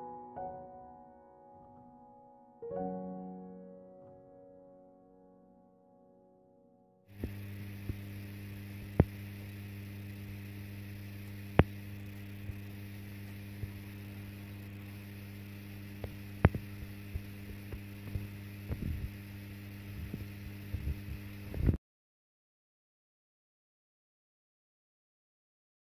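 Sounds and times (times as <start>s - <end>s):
electrical mains hum: 7.1s - 21.8s
sharp clicks: 11.2s - 15.1s, 16.0s - 18.8s.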